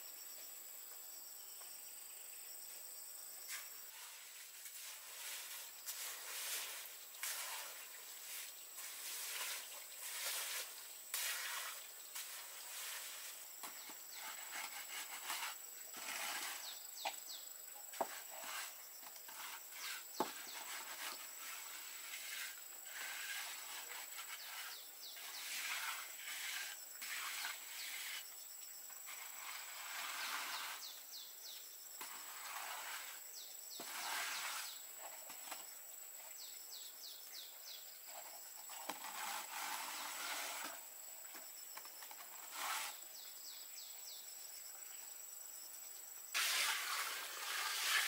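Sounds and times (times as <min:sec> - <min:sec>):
concrete mix scraping: 0:03.5 - 0:28.3, 0:28.9 - 0:31.0, 0:32.0 - 0:35.6, 0:38.1 - 0:41.0, 0:41.8 - 0:43.1, 0:46.3 - 0:48.0.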